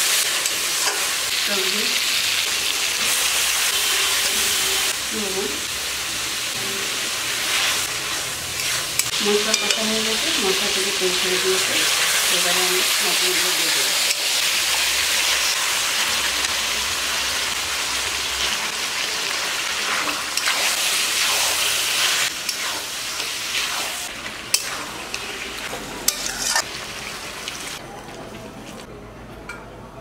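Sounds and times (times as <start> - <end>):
meat sizzling in hot oil: 0.0 - 27.8
metal spatula scraping a pan: 24.5 - 25.3, 26.1 - 26.7.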